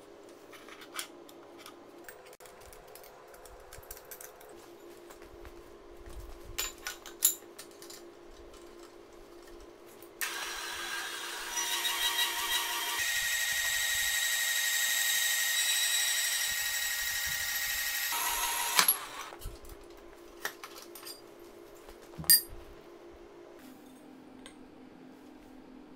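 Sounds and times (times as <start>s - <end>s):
band saw cutting metal pipe: 10.2s - 19.3s
metal clang: 22.2s - 22.5s.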